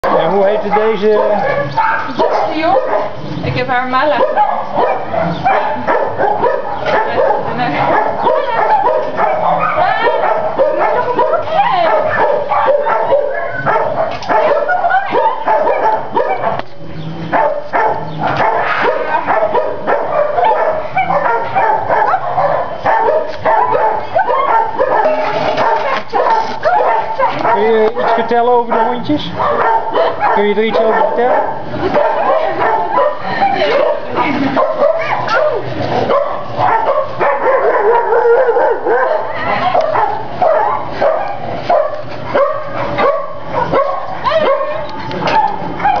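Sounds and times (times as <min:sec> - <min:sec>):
many dogs barking and yelping: 0:00.0 - 0:46.0.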